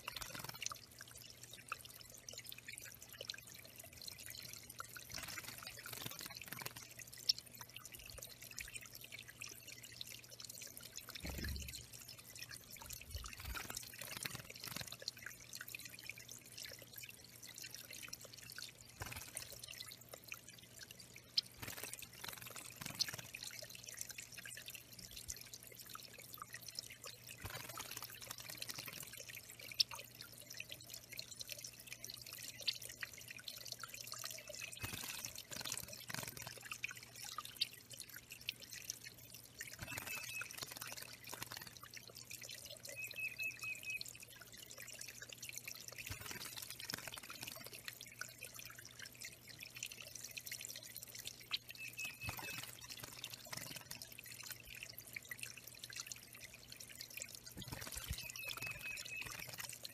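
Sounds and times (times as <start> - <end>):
water trickling and dripping: 0.0 - 59.9.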